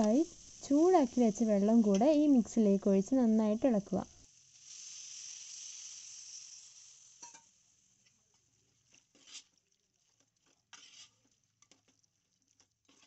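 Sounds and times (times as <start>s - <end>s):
hot water pouring into a pan: 0.0s - 13.0s
spoon scraping a pan: 8.8s - 9.6s, 10.4s - 11.9s.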